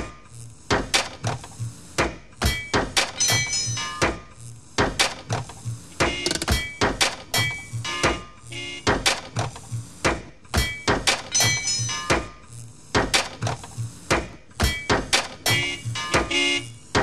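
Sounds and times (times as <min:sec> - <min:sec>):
rhythmic metal knocks and clanks: 0:00.0 - 0:17.0
metallic ringing tones: 0:02.5 - 0:04.0, 0:10.6 - 0:12.4.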